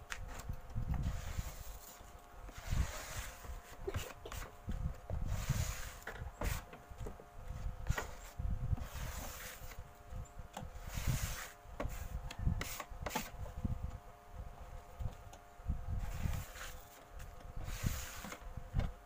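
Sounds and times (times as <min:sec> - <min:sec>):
rag rubbing wood: 0:01.0 - 0:04.6, 0:05.2 - 0:06.8, 0:07.8 - 0:09.8, 0:10.8 - 0:13.3.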